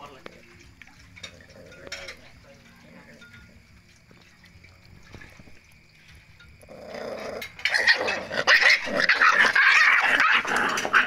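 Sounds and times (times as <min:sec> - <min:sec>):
puppy growling: 0:01.2 - 0:02.2, 0:06.6 - 0:11.0
puppies yelping: 0:06.7 - 0:11.0.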